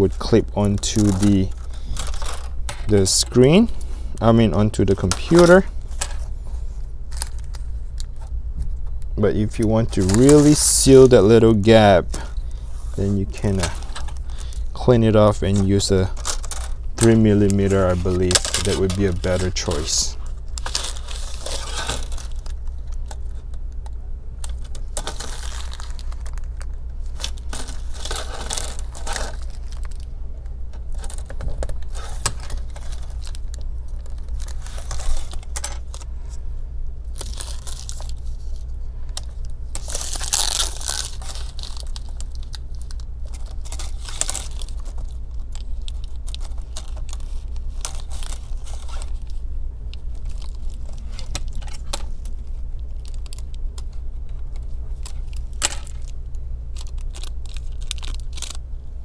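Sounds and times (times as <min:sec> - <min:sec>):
low hum: 0:00.0 - 0:59.0
tape tearing and peeling: 0:17.4 - 0:23.4, 0:39.7 - 0:49.4.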